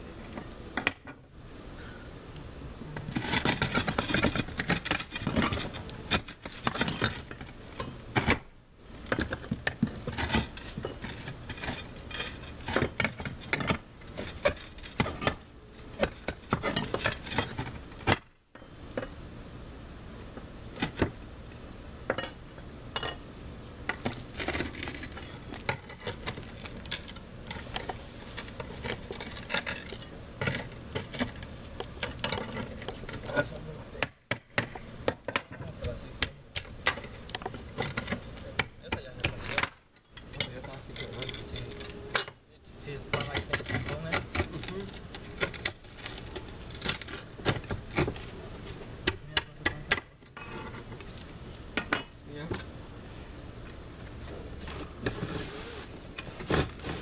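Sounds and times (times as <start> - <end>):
roof tiles scraping and knocking: 3.0 - 18.2, 23.9 - 33.6, 54.6 - 57.0.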